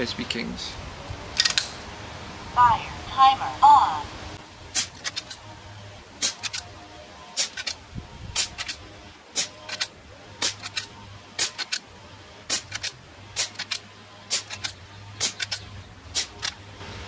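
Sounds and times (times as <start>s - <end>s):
rifle action clicks: 6.2s - 6.7s, 7.4s - 7.8s, 8.4s - 8.8s, 9.4s - 11.8s, 12.5s - 16.6s
suppressed air rifle shots: 6.2s - 6.7s, 7.4s - 7.8s, 8.4s - 11.8s, 12.5s - 16.6s.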